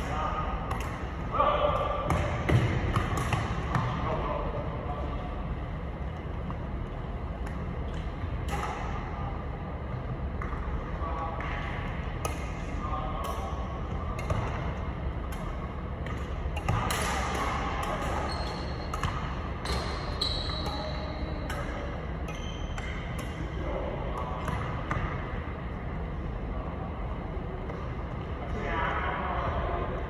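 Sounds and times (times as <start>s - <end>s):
rackets striking shuttlecock: 0.0s - 4.1s, 7.4s - 9.1s, 11.4s - 25.2s
steady low hum: 0.0s - 30.0s
shoes squeaking on wooden court: 18.0s - 21.6s, 22.3s - 23.2s.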